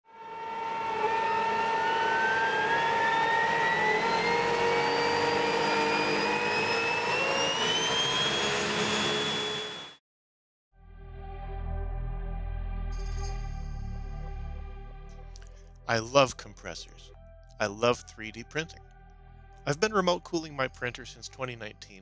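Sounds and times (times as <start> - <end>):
electric motor hum: 0.1 - 9.9
compressor whine rising in pitch: 0.1 - 10.0.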